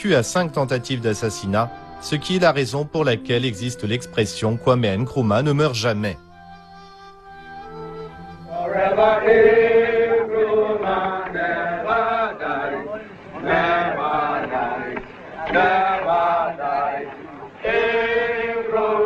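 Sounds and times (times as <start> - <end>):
voices chanting: 7.7 - 19.0.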